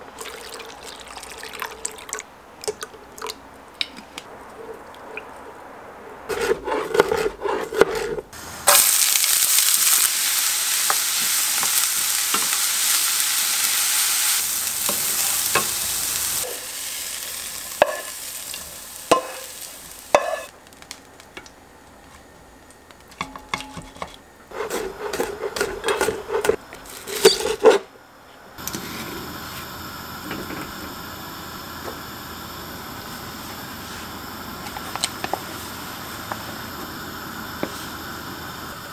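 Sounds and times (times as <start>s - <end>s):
pot simmering: 0.0s - 5.6s, 6.3s - 21.6s
food sizzling in a pan: 8.4s - 20.9s, 28.7s - 38.9s.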